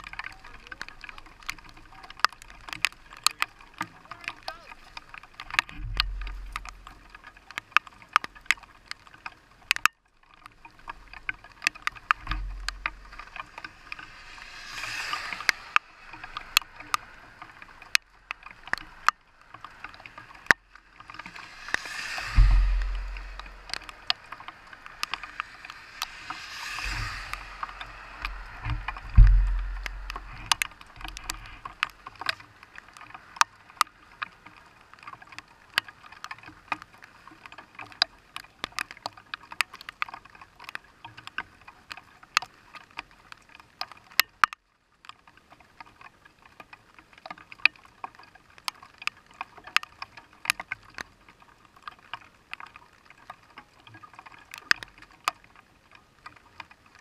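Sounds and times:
raindrops ticking on camera: 0.0s - 57.0s
wind buffeting microphone: 12.2s - 32.0s.

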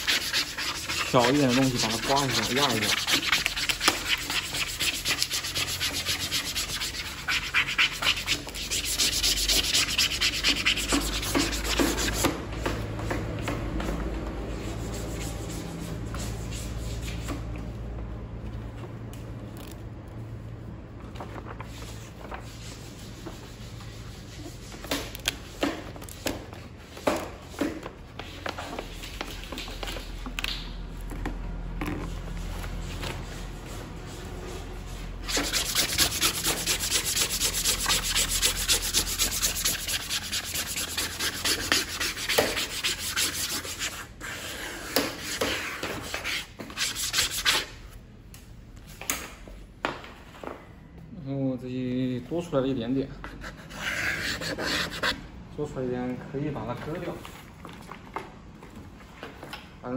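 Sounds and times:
film rubbing on foam: 0.0s - 12.3s, 32.4s - 47.8s.

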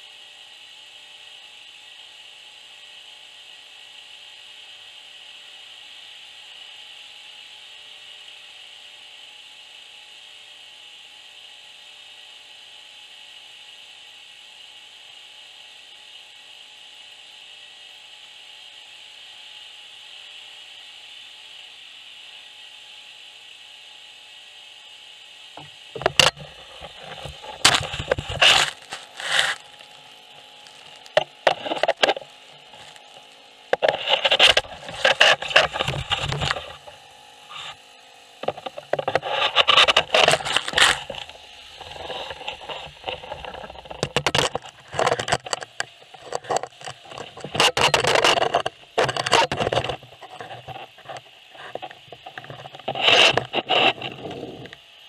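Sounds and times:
gutter vacuum hissing: 0.0s - 55.0s
debris rattling in vacuum nozzle: 25.9s - 36.9s, 38.4s - 51.2s.

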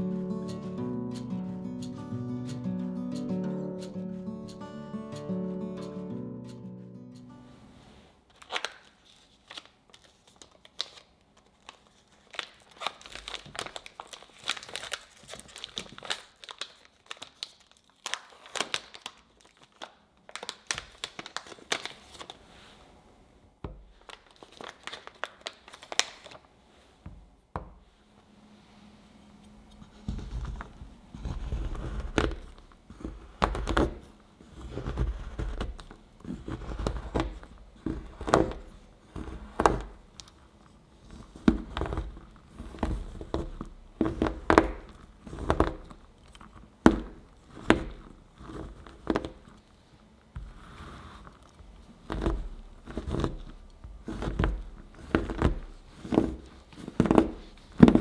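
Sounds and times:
paper wrapper crinkling and tearing: 8.3s - 22.5s, 23.9s - 26.5s, 31.2s - 49.8s
knife chopping chocolate on board: 46.9s - 48.0s.

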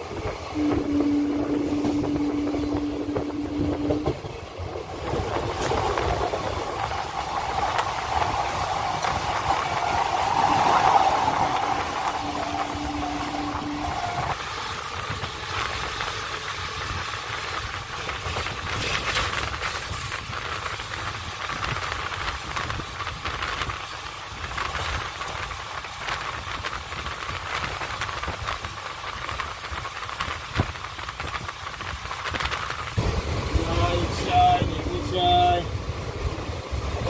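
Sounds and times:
rushing air: 0.0s - 37.0s
train wheels clattering on track: 0.0s - 37.0s.

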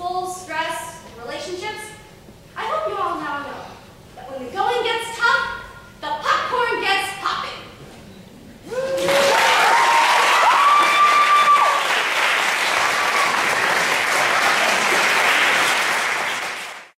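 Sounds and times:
drawn-out whoops: 8.6s - 11.9s
audience applauding and cheering: 8.7s - 17.0s.

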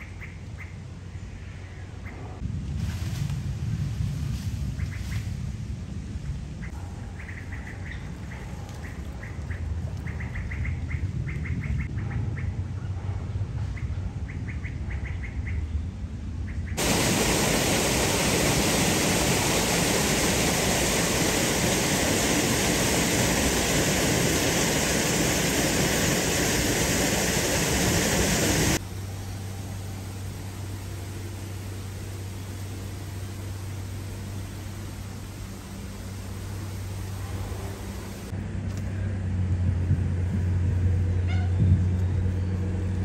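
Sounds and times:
birds chirping in rapid trills: 0.0s - 2.2s, 6.6s - 12.6s, 13.8s - 17.5s
low rumble: 1.6s - 7.0s
low hum: 15.6s - 43.0s
loud steady rushing noise: 16.6s - 41.2s.

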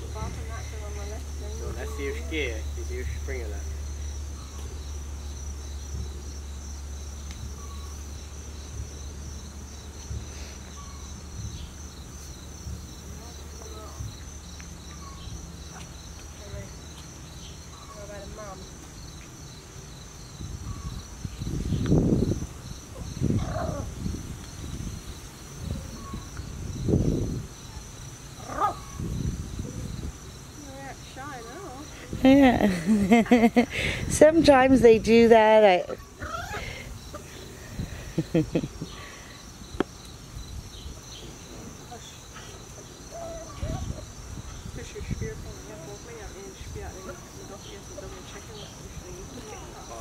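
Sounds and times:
low steady rumble: 0.0s - 17.8s
insect high steady trill: 0.0s - 50.0s
insect pulsing trill: 0.0s - 50.0s.

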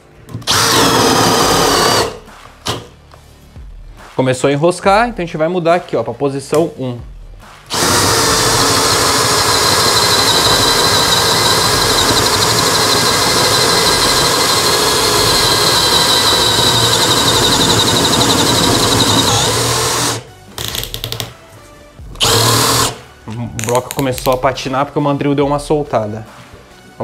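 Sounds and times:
cordless drill whining: 0.4s - 2.9s, 7.7s - 21.2s, 22.2s - 23.0s.

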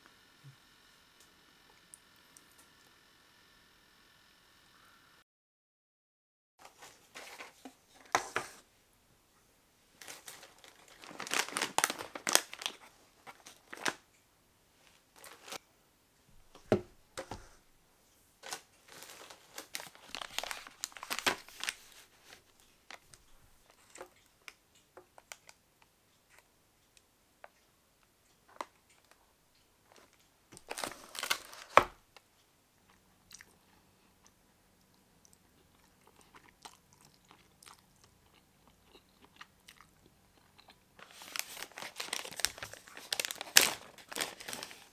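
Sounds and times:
plastic packaging crinkling: 10.0s - 14.0s, 15.1s - 15.6s, 18.4s - 24.1s, 29.9s - 32.0s, 41.0s - 44.9s.

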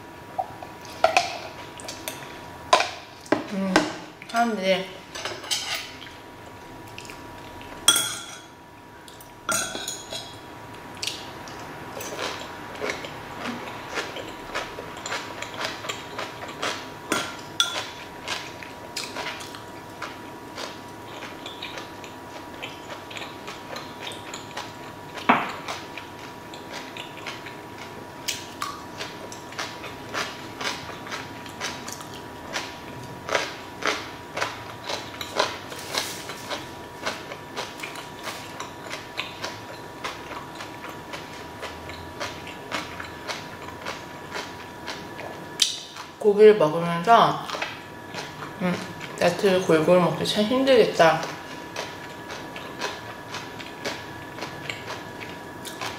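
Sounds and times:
cutlery clinking on metal trays: 7.9s - 8.5s
chewing: 11.0s - 16.9s, 17.8s - 46.1s, 51.2s - 55.9s.

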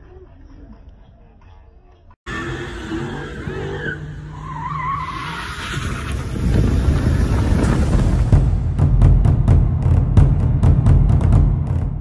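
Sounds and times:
tyres squealing on pavement: 2.3s - 8.3s
car engine at high revs: 2.3s - 8.4s.

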